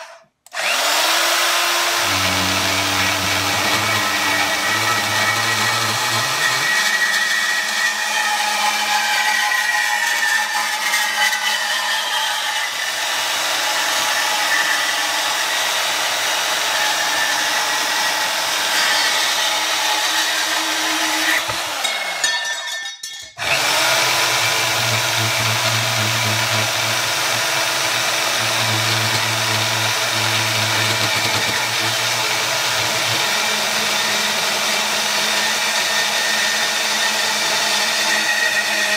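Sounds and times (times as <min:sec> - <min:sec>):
bandsaw cutting metal: 0:00.0 - 0:38.9.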